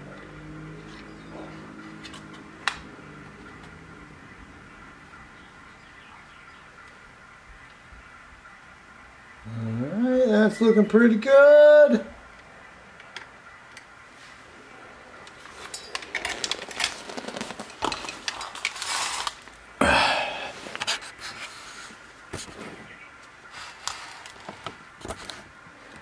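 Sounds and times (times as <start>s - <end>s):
tools clattering on metal chassis: 15.5s - 16.8s.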